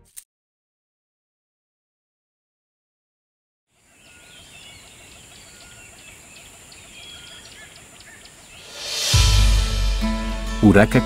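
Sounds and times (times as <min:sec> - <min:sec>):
small birds chirping: 0:03.7 - 0:09.1
steady outdoor hiss: 0:03.7 - 0:11.0.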